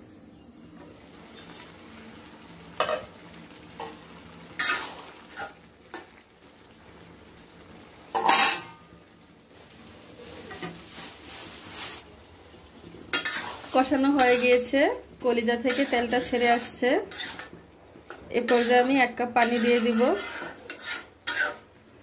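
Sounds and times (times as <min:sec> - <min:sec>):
faint sizzle: 0:00.0 - 0:22.0
spoon scraping metal pot: 0:13.1 - 0:14.7, 0:15.6 - 0:17.6, 0:18.4 - 0:21.7.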